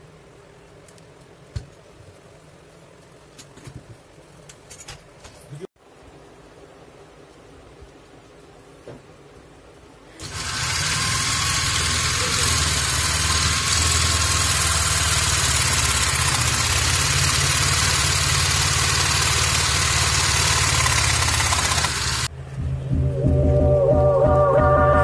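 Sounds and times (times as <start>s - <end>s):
electric drill motor whine: 10.2s - 22.3s
saw blade rattling: 10.2s - 22.3s.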